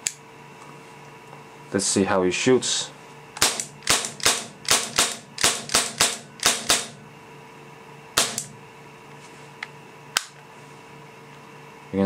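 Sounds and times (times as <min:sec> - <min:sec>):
airsoft pistol shots: 0:03.4 - 0:07.0, 0:08.2 - 0:08.5.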